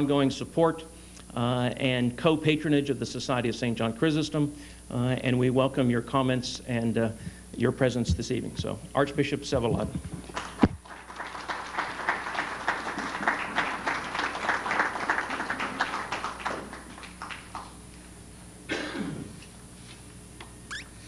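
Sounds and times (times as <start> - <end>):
audience applauding: 10.3 - 17.8.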